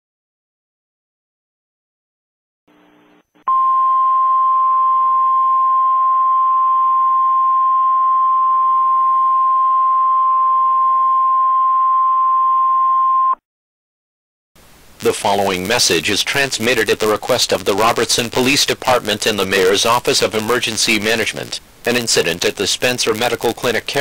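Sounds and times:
faint hiss: 14.6 - 24.0.

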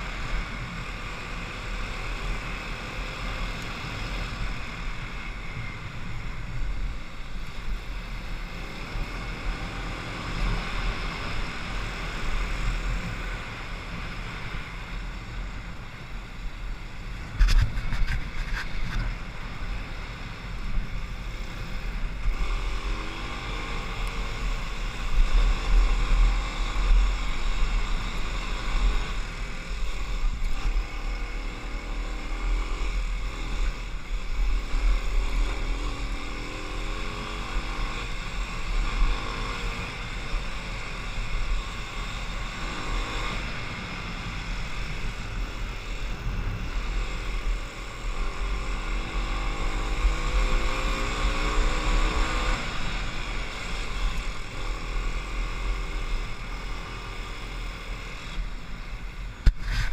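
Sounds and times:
motorcycle engine revving: 17.0 - 59.9
wind on microphone: 17.2 - 19.4, 59.3 - 59.9.

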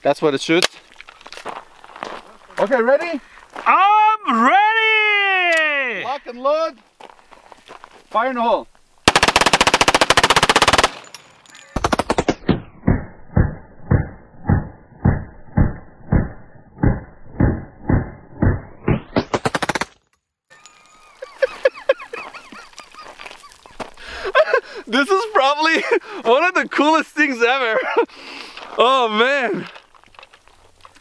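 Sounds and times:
pistol firing fast burst: 9.1 - 11.0
slowed gunshots as deep booms: 11.9 - 19.9.

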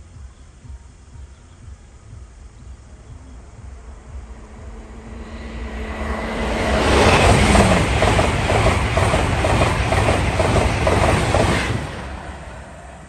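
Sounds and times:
train passing at speed: 2.9 - 13.0
wheels clacking over track: 6.0 - 12.2.

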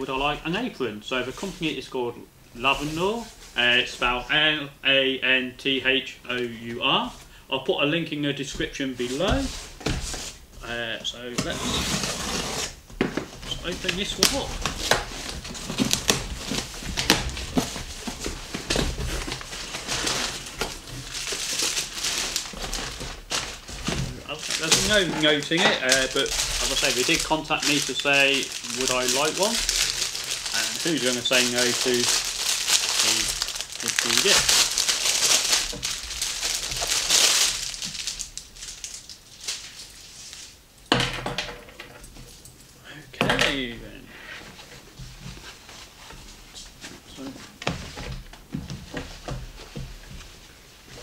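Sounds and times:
plastic bag rustling: 8.9 - 10.7, 11.4 - 40.7
plastic packaging crinkling: 13.4 - 40.6.

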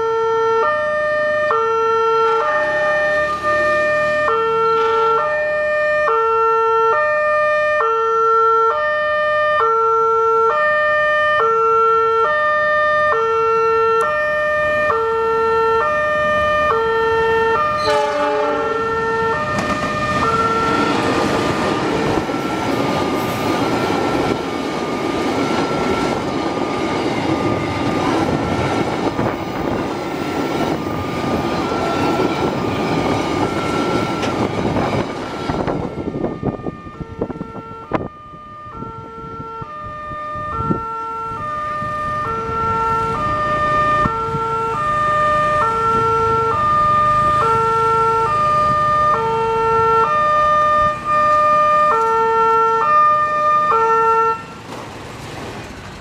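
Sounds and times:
train horn: 0.0 - 5.5, 7.8 - 21.0, 33.4 - 54.6
two-tone crossing alarm: 0.0 - 54.7
train wheels rumbling on rail: 13.9 - 56.0.

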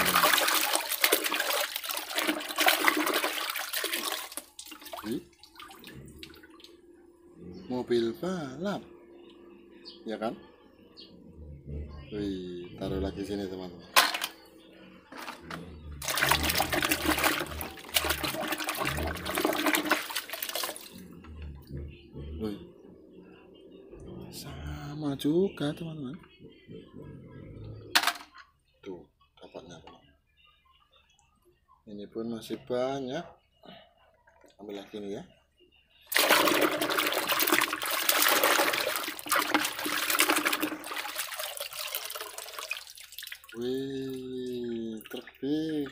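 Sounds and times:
water splashing in a plastic basin: 0.0 - 6.8, 15.1 - 21.1, 36.1 - 43.9, 44.5 - 45.9.

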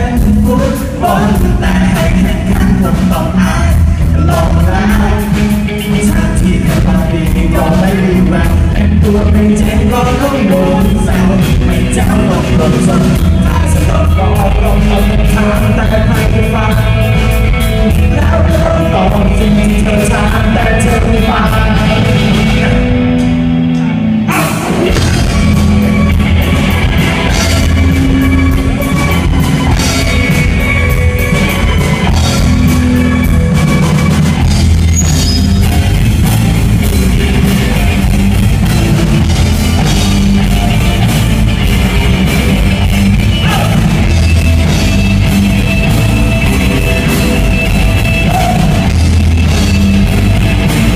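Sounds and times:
man singing: 0.0 - 23.1, 23.7 - 26.1, 43.4 - 44.2, 48.2 - 49.1
drum kit: 0.0 - 50.9
live rock band: 0.0 - 50.9.

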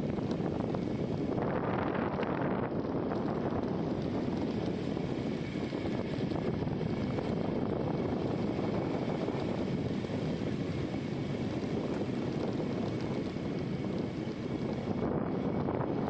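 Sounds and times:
motorbike engine and road drone: 0.0 - 16.0
wind on microphone: 0.0 - 16.0.

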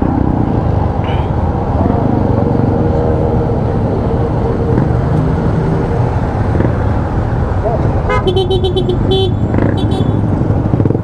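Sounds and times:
wind rumble on microphone: 0.0 - 8.1
motorcycle engine running: 0.0 - 11.0.

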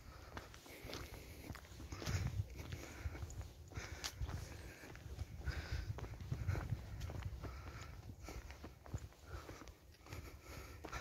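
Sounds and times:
footsteps walking: 0.0 - 11.0
wind rumble on microphone: 0.9 - 9.5.

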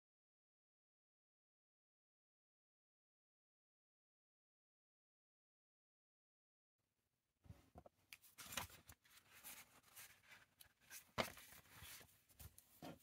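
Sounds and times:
paper rustling: 8.1 - 13.0.

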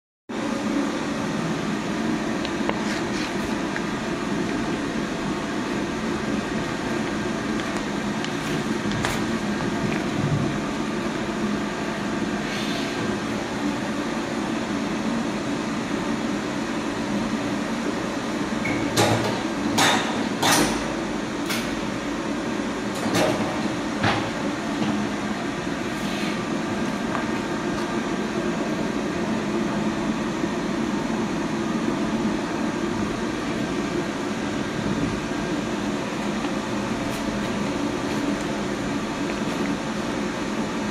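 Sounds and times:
welding machine humming: 0.5 - 12.4, 32.2 - 40.9.

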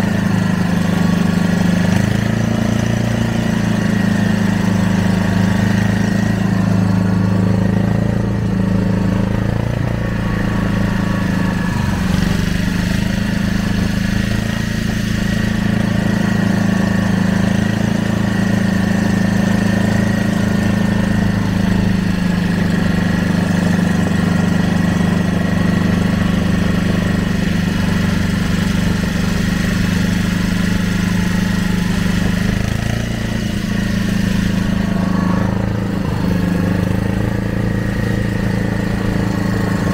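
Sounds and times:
boat motor low drone: 0.0 - 39.9.

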